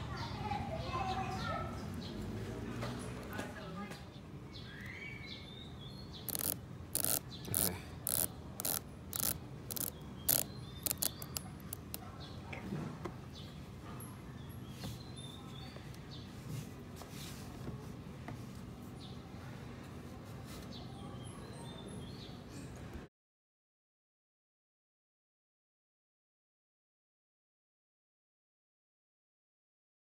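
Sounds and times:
watch bezel ratchet clicks: 6.3 - 12.0.

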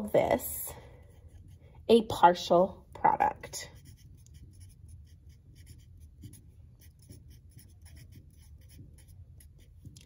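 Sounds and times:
marker writing on paper: 3.7 - 10.0.

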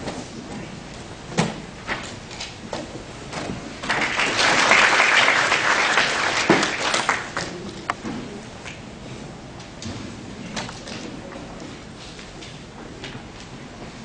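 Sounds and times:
audience applause: 3.8 - 7.7.

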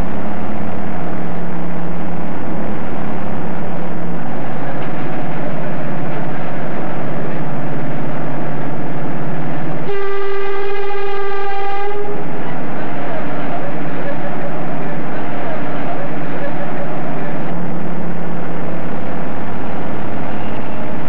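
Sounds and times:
rail bus engine hum: 0.0 - 21.0
train horn long note: 9.7 - 15.9.

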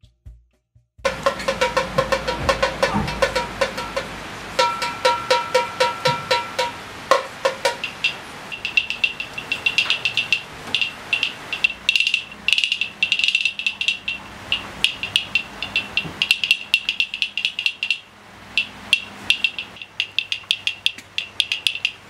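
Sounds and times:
hand drum taps: 1.0 - 11.8, 14.9 - 16.5
wooden bead rattle clacking: 1.1 - 22.0.

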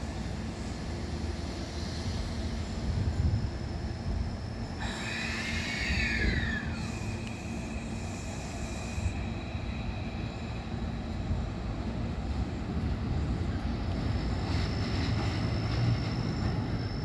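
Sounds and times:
steady high whine: 0.0 - 14.8
electric train low rumble: 0.0 - 17.0
air hiss: 4.8 - 9.4.

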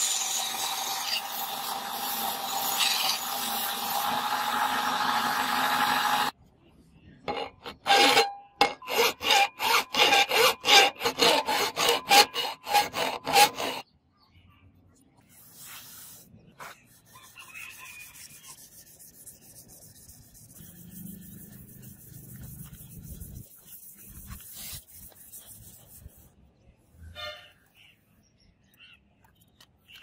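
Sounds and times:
file rasping on steel blade: 0.0 - 6.3, 7.3 - 13.8, 17.0 - 26.1.

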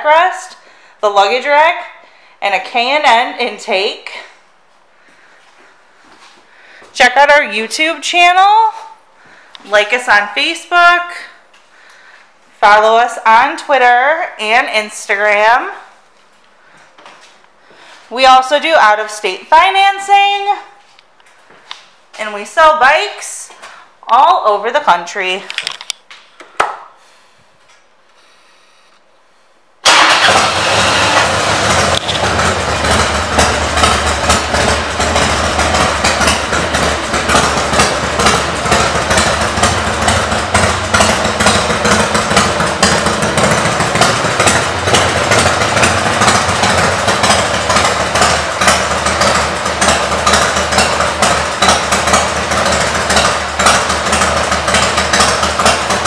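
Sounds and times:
motorcycle engine idling: 29.9 - 56.0.

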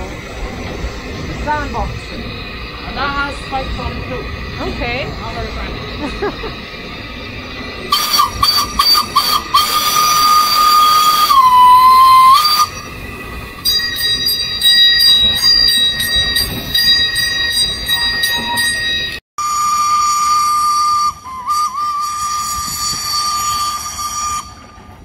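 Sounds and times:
high steady tone: 0.0 - 21.5
steam whistle: 7.9 - 13.0, 19.4 - 24.8.

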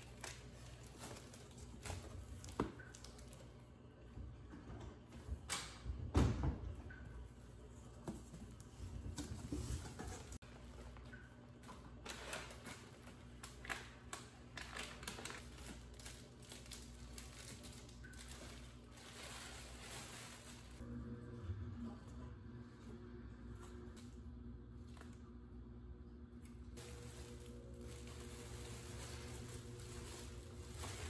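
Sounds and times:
plastic and foil bag crinkling: 0.0 - 3.5, 11.7 - 20.8, 26.8 - 31.0.

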